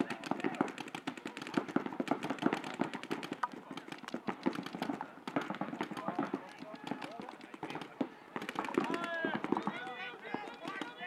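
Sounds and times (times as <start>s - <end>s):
paintball markers firing: 0.0s - 11.0s.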